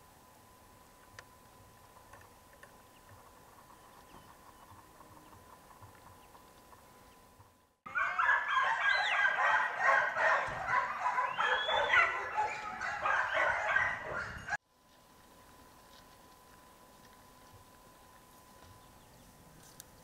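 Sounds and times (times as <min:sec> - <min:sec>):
pack of dogs barking and baying: 0:07.9 - 0:14.6.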